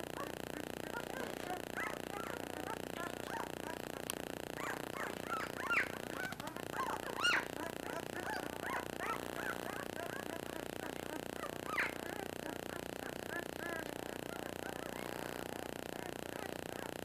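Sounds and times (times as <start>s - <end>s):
puppies squeaking and whimpering: 4.6s - 10.3s, 11.4s - 12.1s.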